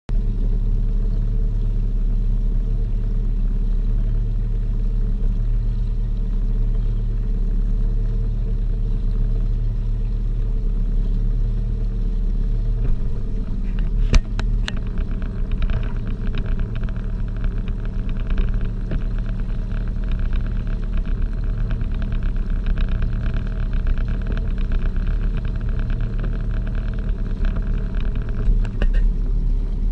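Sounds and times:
boat engine humming: 0:00.1 - 0:29.9
crackling hiss: 0:12.6 - 0:29.2.

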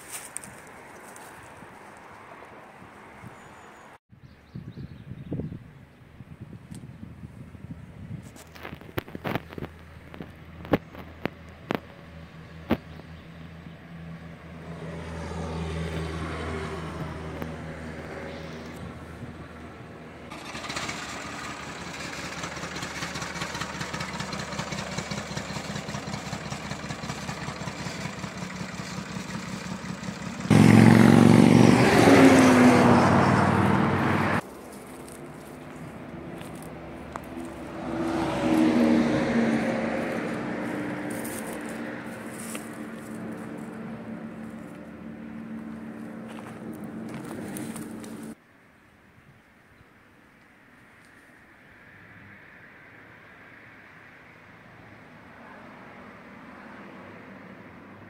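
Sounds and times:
vehicle engine running: 0:16.6 - 0:48.4
loud engine running: 0:18.4 - 0:48.4.

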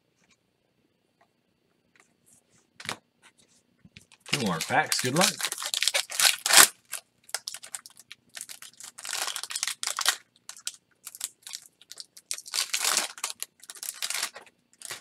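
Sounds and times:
foil pack tearing and crinkling: 0:04.3 - 0:15.0.

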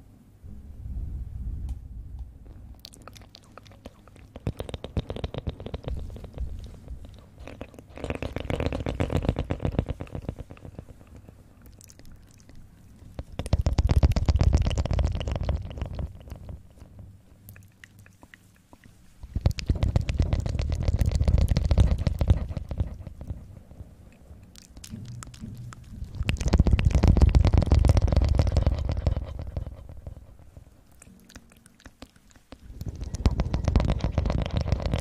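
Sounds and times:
fingertips scratching a microphone: 0:03.8 - 0:11.4, 0:13.0 - 0:17.2, 0:18.6 - 0:31.0, 0:32.0 - 0:35.0.

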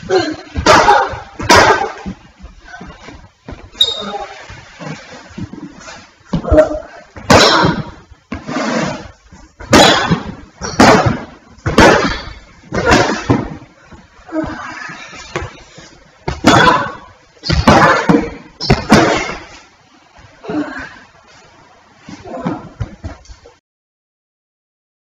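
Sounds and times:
hard fight hits: 0:00.5 - 0:02.2, 0:07.2 - 0:08.0, 0:09.6 - 0:13.7, 0:16.2 - 0:19.6.

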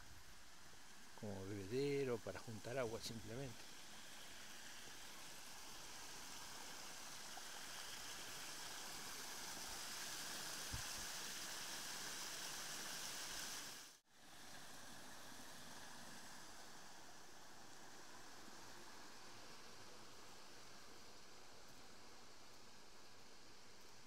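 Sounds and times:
water rushing over a weir: 0:00.3 - 0:16.9.

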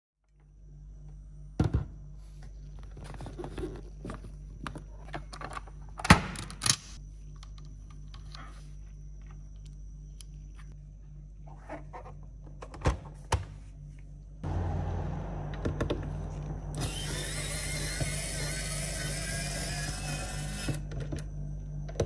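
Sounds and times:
steady low hum: 0:06.9 - 0:22.0.

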